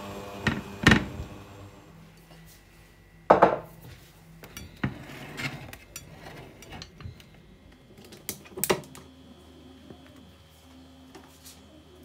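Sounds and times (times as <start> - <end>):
utensil scraping plate: 4.7 - 7.0.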